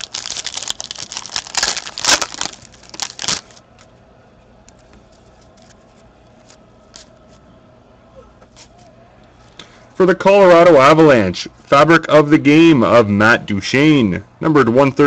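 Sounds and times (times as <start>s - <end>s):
foil wrapper crinkling and tearing: 0.0s - 3.8s.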